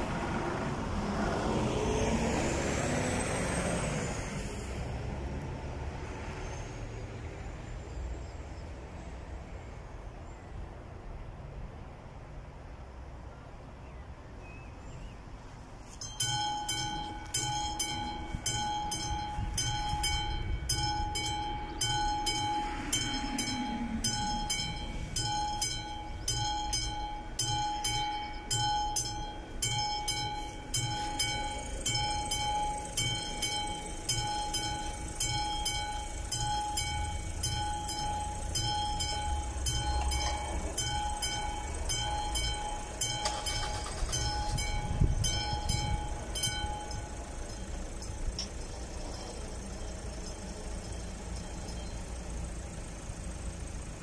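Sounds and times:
road vehicles idling and passing: 0:00.0 - 0:54.0
level crossing warning bell: 0:15.8 - 0:54.0.

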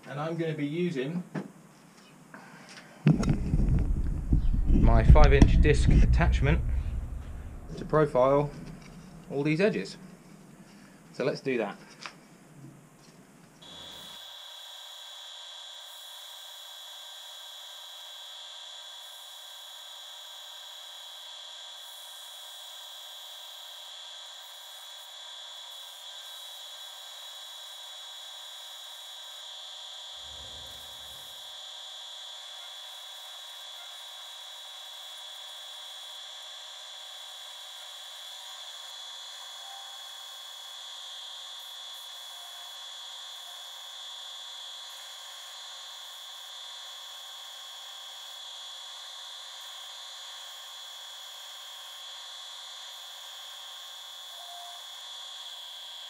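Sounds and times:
low thump: 0:03.1 - 0:09.3
lathe high whine: 0:03.1 - 0:10.8, 0:13.6 - 0:56.0.

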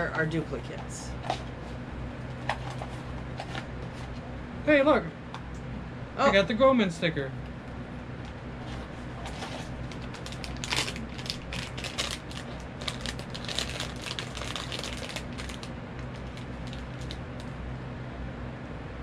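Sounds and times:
foil bag crinkling: 0:08.8 - 0:17.5.

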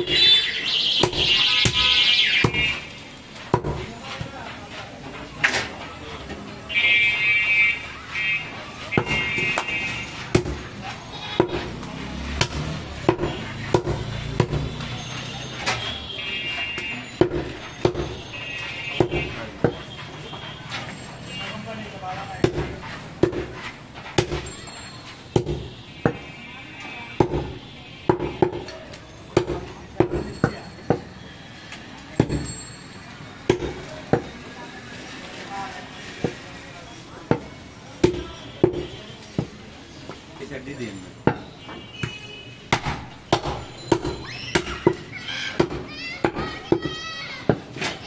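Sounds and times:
knife chopping meat on wood: 0:01.0 - 0:02.8, 0:03.5 - 0:03.9, 0:08.9 - 0:10.7, 0:11.4 - 0:14.9, 0:22.4 - 0:24.6, 0:25.4 - 0:26.3, 0:27.2 - 0:28.7, 0:37.3 - 0:39.6, 0:41.3 - 0:46.9
knife chopping on wooden block: 0:22.4 - 0:24.5.

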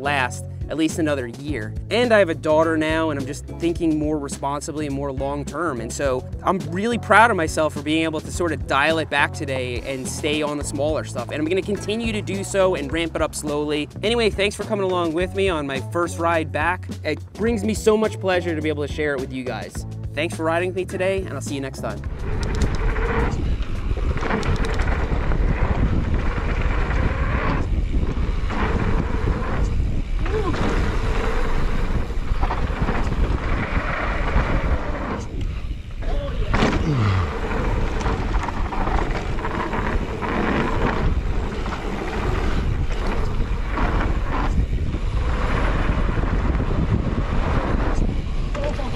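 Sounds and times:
bike rolling on dirt trail: 0:00.0 - 0:18.9, 0:19.6 - 0:48.9
wind buffeting microphone: 0:18.8 - 0:48.9.

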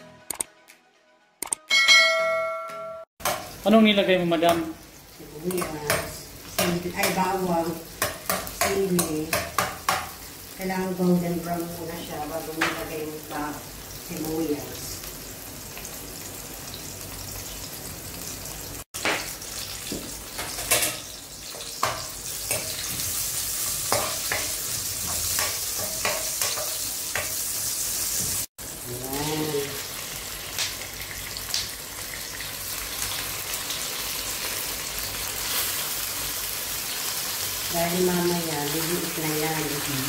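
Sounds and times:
food sizzling in hot oil: 0:03.2 - 0:40.0
spatula scraping and knocking a pan: 0:19.0 - 0:27.4.

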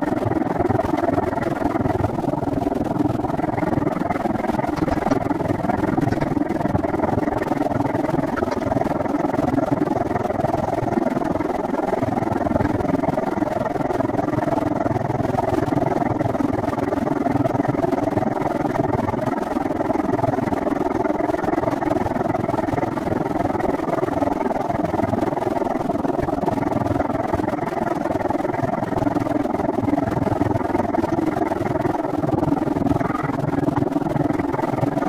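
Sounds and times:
wind on microphone: 0:00.1 - 0:13.0.

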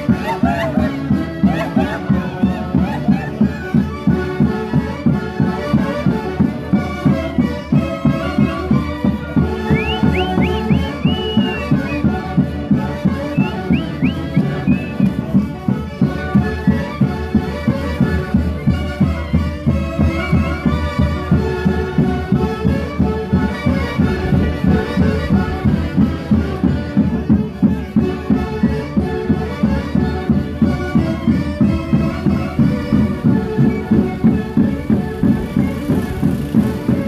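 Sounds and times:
steady drum beat: 0:00.0 - 0:03.4, 0:09.0 - 0:16.4, 0:19.3 - 0:37.0
wind instruments playing tune: 0:00.0 - 0:37.0
rising whistle-like calls: 0:09.6 - 0:12.0, 0:13.3 - 0:15.1.

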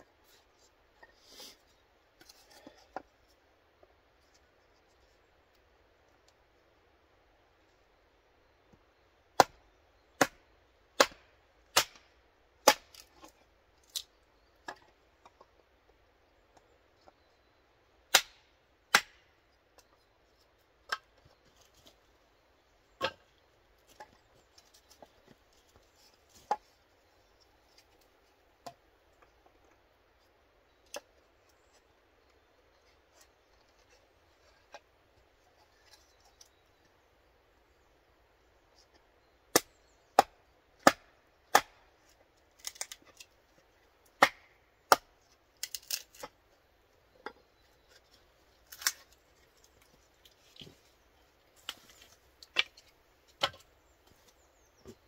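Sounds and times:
hatchet chopping kindling: 0:09.4 - 0:09.6, 0:10.2 - 0:10.4, 0:11.0 - 0:12.0, 0:12.6 - 0:13.1, 0:18.1 - 0:19.3, 0:39.5 - 0:41.9, 0:44.2 - 0:46.3.

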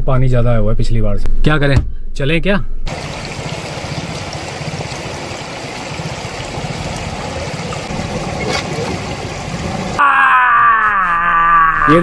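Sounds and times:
car rumble: 0:02.9 - 0:10.0
water rushing and splashing: 0:02.9 - 0:10.0.

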